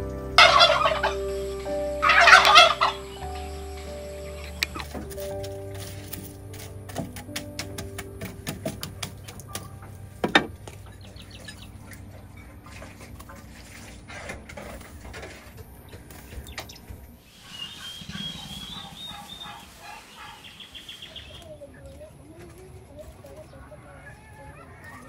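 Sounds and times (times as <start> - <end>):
fowl rattling calls: 0.4 - 5.5, 17.4 - 20.9
stick clicking in charcoal: 4.4 - 9.7.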